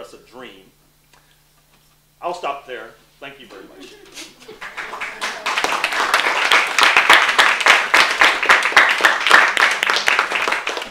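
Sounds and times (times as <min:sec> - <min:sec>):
audience applauding: 0:04.3 - 0:10.9.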